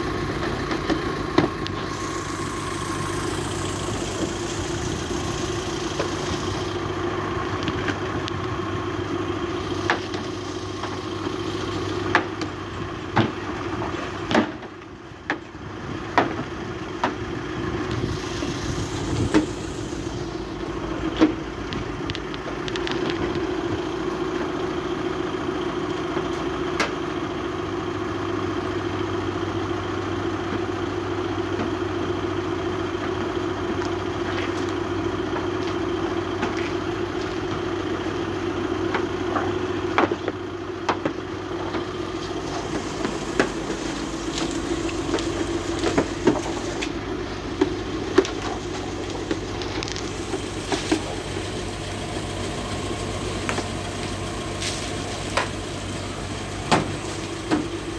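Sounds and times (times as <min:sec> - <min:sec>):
pressure pump droning: 0:00.0 - 0:14.8, 0:15.4 - 0:27.0, 0:31.5 - 0:57.9
foam brush scrubbing: 0:42.2 - 0:46.9.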